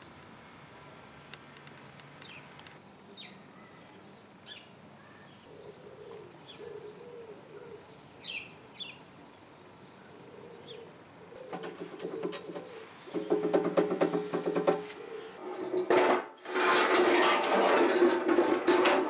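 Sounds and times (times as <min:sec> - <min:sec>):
small birds chirping: 0:02.2 - 0:15.4
pigeon cooing low: 0:05.4 - 0:08.0, 0:10.0 - 0:13.0, 0:14.8 - 0:15.4.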